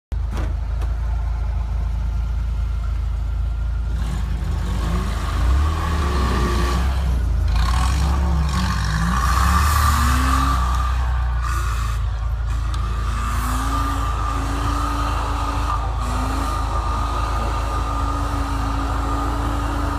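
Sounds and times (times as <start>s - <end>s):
off-road vehicle engine revving: 2.6s - 19.9s.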